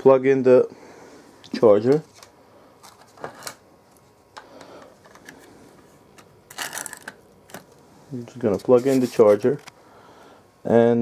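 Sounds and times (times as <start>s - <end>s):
cord rustling and scraping: 6.5s - 7.7s.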